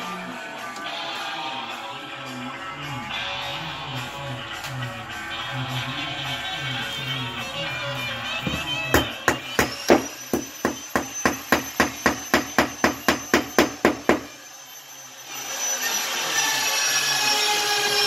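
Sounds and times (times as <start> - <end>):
high multi-tone whine: 0.0 - 17.6
hammer driving a nail: 8.5 - 14.3.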